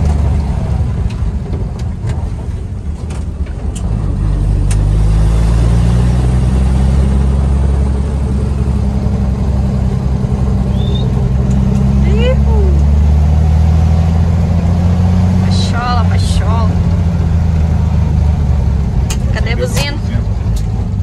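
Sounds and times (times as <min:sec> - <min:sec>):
car engine running: 0:00.0 - 0:21.0
sharp clicks and knocks: 0:19.0 - 0:21.0.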